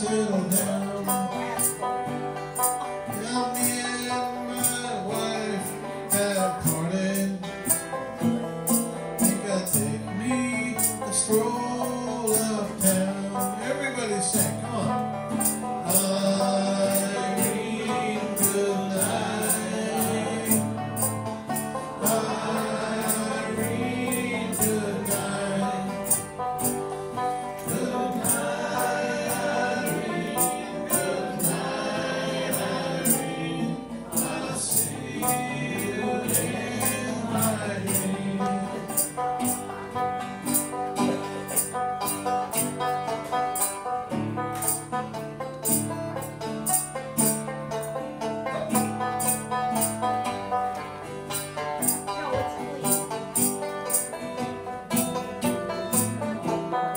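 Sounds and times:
voices singing: 0.0s - 1.8s, 3.1s - 8.0s, 8.7s - 39.8s
banjo and guitars strumming: 0.0s - 56.9s.

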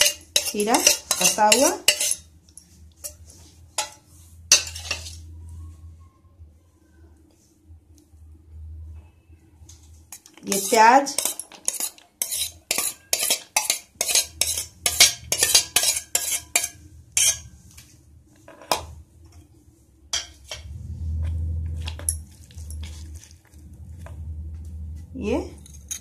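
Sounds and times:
steel spoon clinking on metal plate: 0.0s - 3.2s, 3.8s - 5.3s, 10.1s - 17.5s, 25.6s - 26.0s
low rumble: 20.5s - 26.0s.

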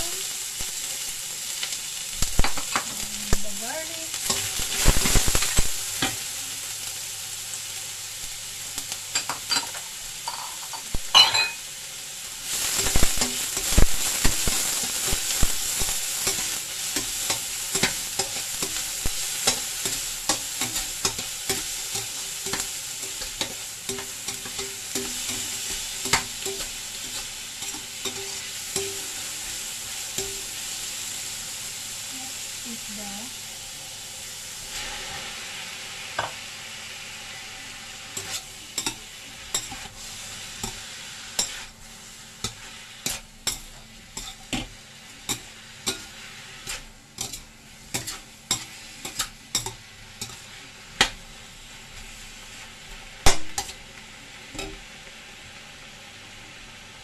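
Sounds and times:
onions sizzling in hot oil: 0.0s - 57.0s
metal spatula scraping a wok: 38.1s - 41.7s, 42.4s - 50.6s.

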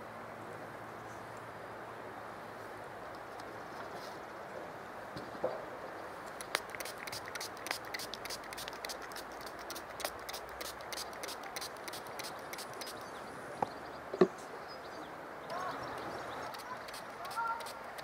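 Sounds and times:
steady background hiss: 0.0s - 18.0s
spray bottle spritzes and clicks: 6.4s - 13.0s, 16.4s - 18.0s.

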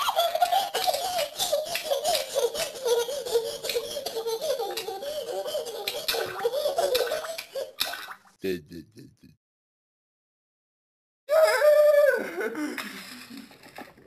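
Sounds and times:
high-pitched laughing: 8.4s - 9.4s.

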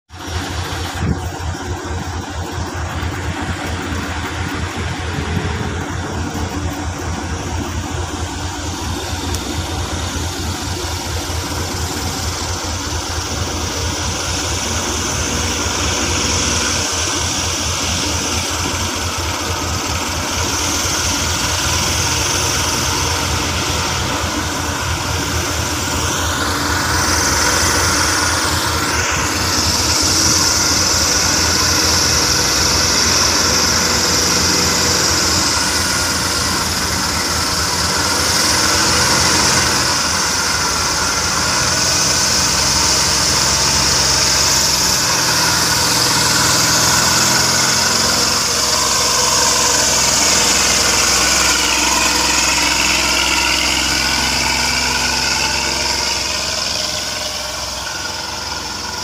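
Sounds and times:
diesel engine idling: 0.0s - 59.0s
truck approaching with whine: 0.0s - 59.0s.

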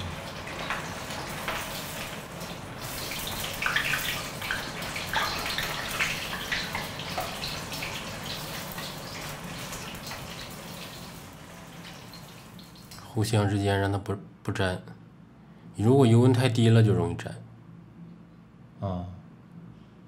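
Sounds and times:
oil sizzling and crackling: 0.0s - 13.1s.

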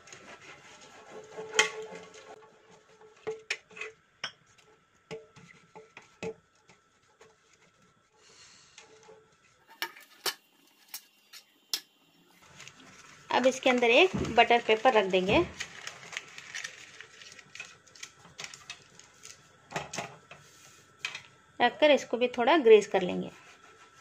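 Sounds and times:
brush spreading butter in tin: 0.0s - 3.8s.

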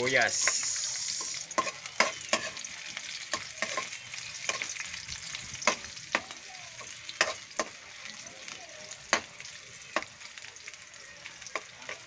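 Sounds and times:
garlic and onion sizzling in oil: 0.0s - 12.0s
spatula scraping a wok: 0.2s - 5.9s.

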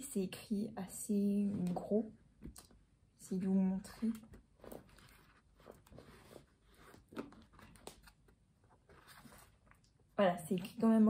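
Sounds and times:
book pages rustling: 4.0s - 10.0s.

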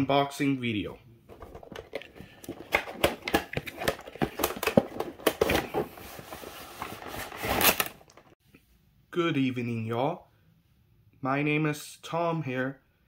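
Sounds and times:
cardboard box scraping and rustling: 3.6s - 8.0s.

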